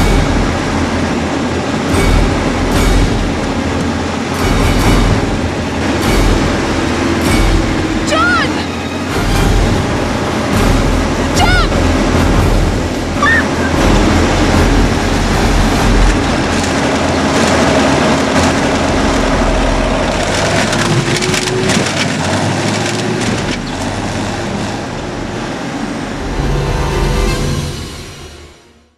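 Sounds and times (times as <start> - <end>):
tractor engine under load: 9.0 - 26.4.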